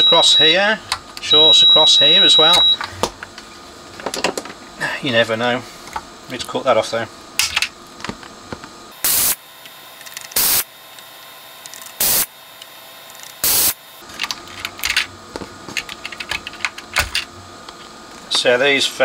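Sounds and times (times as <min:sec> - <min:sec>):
desoldering gun suction hiss: 0:09.0 - 0:10.7, 0:11.7 - 0:12.7, 0:13.4 - 0:13.8.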